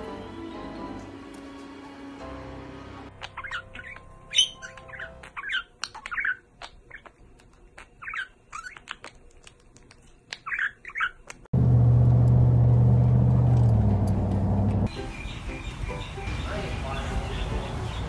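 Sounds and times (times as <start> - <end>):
budgerigars chirping: 3.2 - 7.2, 8.0 - 9.0, 10.4 - 11.2, 14.9 - 18.0.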